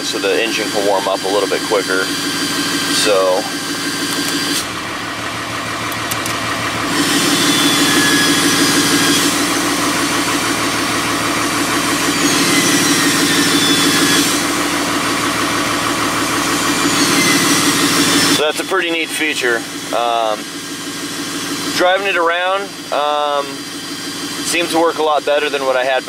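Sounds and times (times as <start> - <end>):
diesel engine idling: 0.0 - 26.0.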